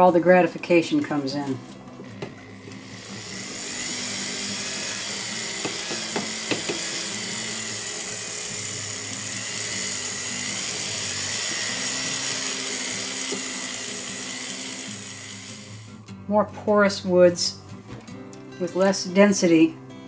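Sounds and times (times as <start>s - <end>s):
rotary tool motor whine: 2.2s - 16.1s.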